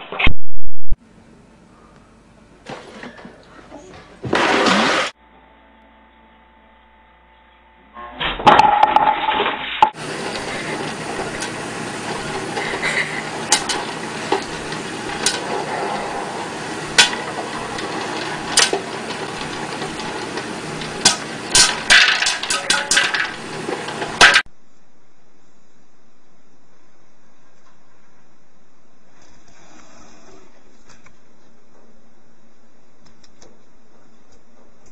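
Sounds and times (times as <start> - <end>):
popcorn kernels popping: 9.9 - 24.5
hot oil hissing: 10.0 - 24.4.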